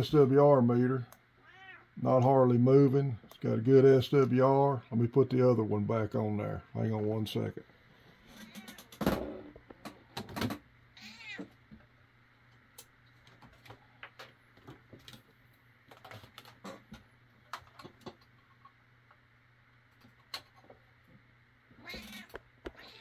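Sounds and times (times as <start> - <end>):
cat meowing: 1.4 - 1.9, 8.3 - 9.0, 11.0 - 11.5, 21.8 - 23.0.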